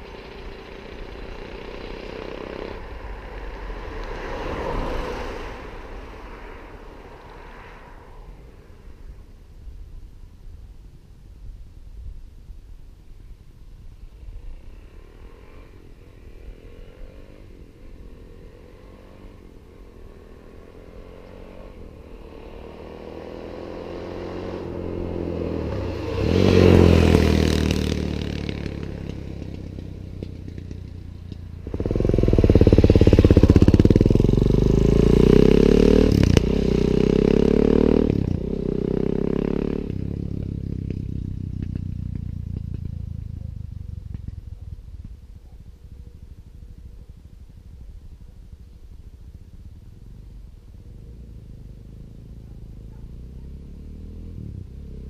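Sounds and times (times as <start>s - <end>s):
dirt bike riding past: 0.0s - 9.5s, 14.0s - 55.0s
dirt bike hard acceleration: 20.2s - 45.4s.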